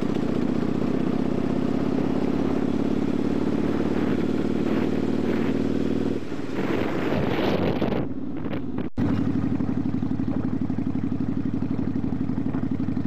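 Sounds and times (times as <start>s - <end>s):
motorcycle engine running: 0.0s - 13.0s
wind noise: 3.5s - 9.2s.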